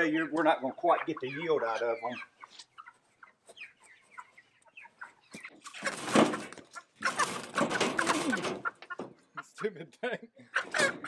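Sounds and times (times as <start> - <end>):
chickens clucking: 0.0 - 11.0
wing-flapping and squawking: 2.4 - 9.2.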